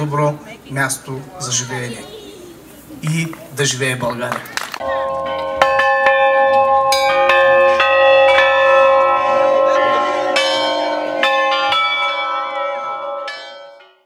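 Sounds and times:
bells ringing: 4.0s - 14.0s.

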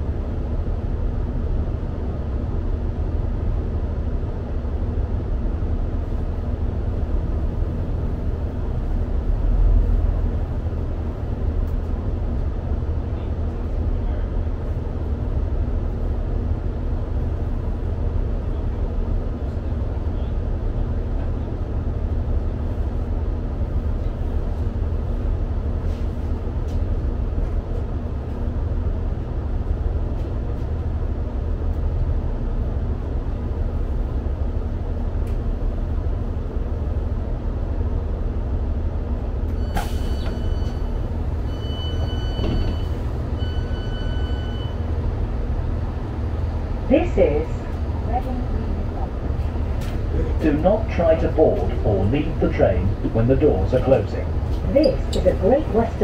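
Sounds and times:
diesel train engine rumble: 0.0s - 56.0s
door warning beeps: 39.6s - 44.8s.

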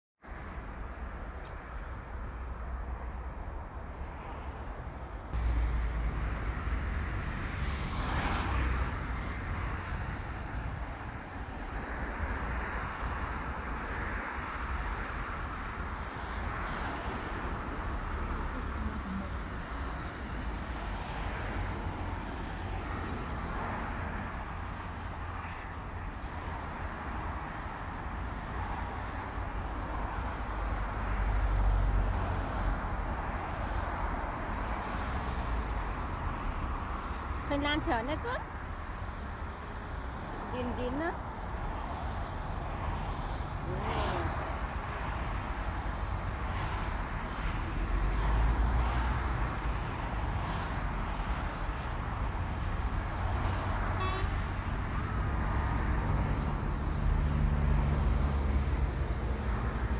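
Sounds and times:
highway traffic rushing: 0.2s - 59.9s
loud vehicle passing: 5.4s - 14.2s, 28.4s - 59.9s.

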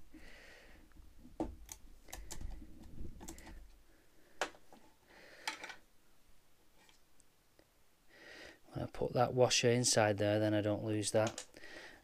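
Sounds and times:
plastic parts clicking: 5.4s - 5.8s, 11.2s - 11.6s.

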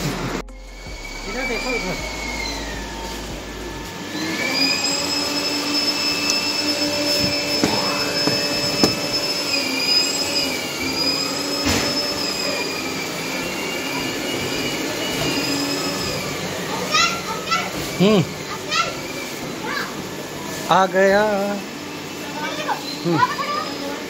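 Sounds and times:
rising sweep: 0.0s - 15.1s
electric motor whirring: 0.0s - 18.2s.

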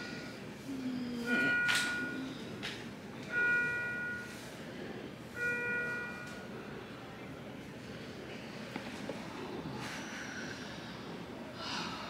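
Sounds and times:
electronic alert chime: 1.3s - 2.3s.

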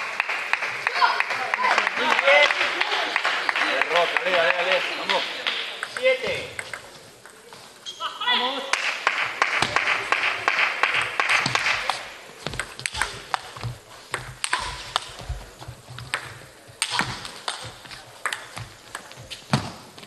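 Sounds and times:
background noise: 0.0s - 20.0s
table tennis ball clicking: 18.2s - 19.2s.

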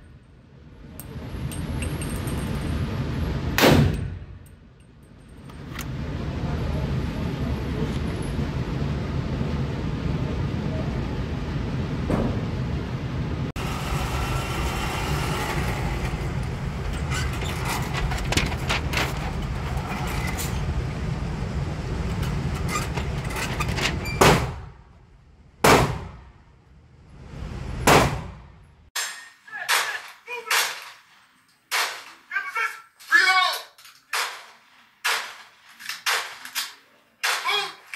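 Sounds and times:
gunshots: 3.6s - 4.2s, 25.6s - 26.3s, 27.9s - 28.4s
steady loud noise: 5.8s - 28.9s.

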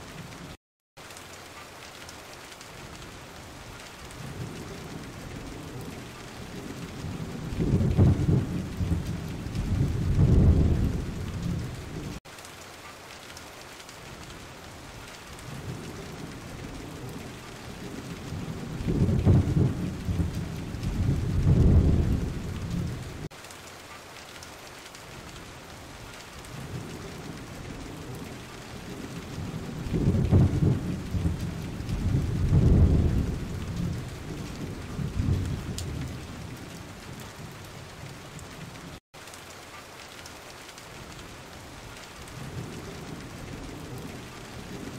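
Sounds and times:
thunder rumbling: 4.1s - 12.2s, 14.9s - 23.3s, 26.4s - 39.0s, 42.3s - 44.9s.

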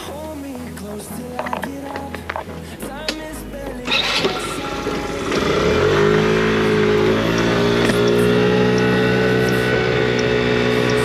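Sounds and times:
scooter engine: 3.8s - 11.0s.

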